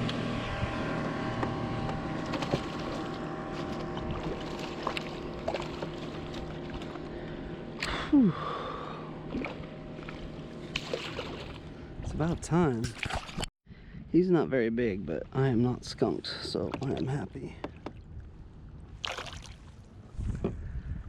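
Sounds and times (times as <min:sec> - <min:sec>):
distant motorboat engine hum: 0:00.0 - 0:13.5
water splashes: 0:02.0 - 0:07.1, 0:09.2 - 0:13.5, 0:15.4 - 0:18.2, 0:18.9 - 0:19.9
fish splashing at surface: 0:02.2 - 0:07.0, 0:09.3 - 0:11.6.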